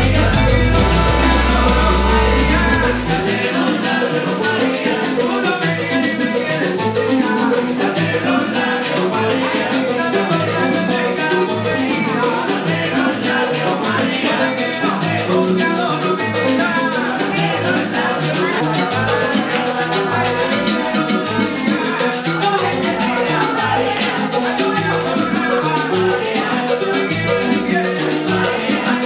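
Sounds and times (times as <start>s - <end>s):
guiro scraping: 0.0s - 3.3s
bass line: 0.0s - 3.4s
strummed guitar: 0.0s - 5.1s
bongos: 0.0s - 13.9s
maracas: 0.0s - 29.0s
voices singing: 0.0s - 29.0s.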